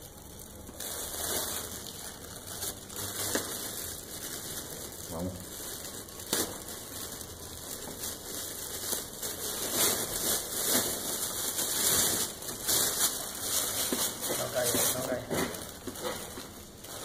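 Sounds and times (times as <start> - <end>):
liquid boiling in a kettle: 0.0 - 9.6.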